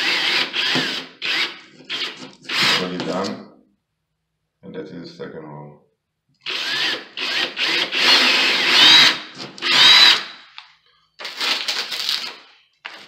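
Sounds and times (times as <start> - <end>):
cordless drill boring drywall: 0.0 - 3.0, 6.4 - 10.5.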